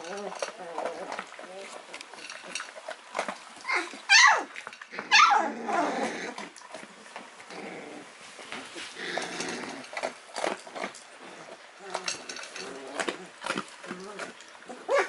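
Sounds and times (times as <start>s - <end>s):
puppies whining and crying: 0.0s - 1.8s, 3.6s - 6.5s, 10.8s - 15.0s.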